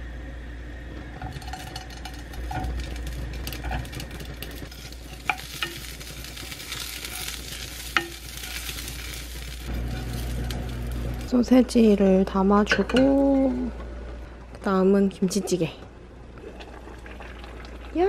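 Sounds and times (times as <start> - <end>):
sausages sizzling in frying pan: 1.4 - 12.0.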